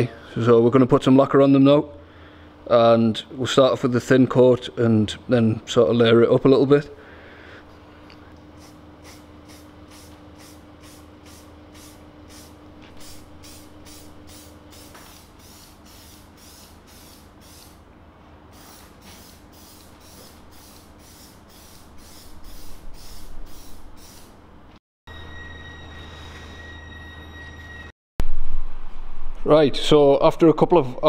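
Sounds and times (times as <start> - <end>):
aerosol spray hisses: 18.6 - 24.3.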